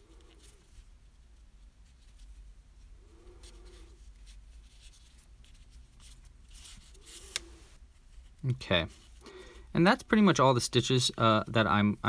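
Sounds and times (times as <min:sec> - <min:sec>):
yarn rustling through fabric: 0:00.0 - 0:09.2.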